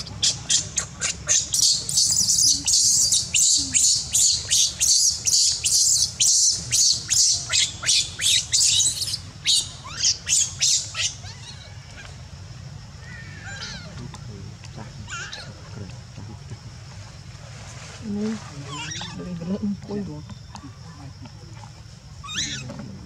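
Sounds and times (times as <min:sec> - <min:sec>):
baby monkey screaming: 0:00.0 - 0:12.2, 0:13.0 - 0:14.0, 0:15.0 - 0:15.6, 0:18.7 - 0:19.2, 0:22.2 - 0:22.9.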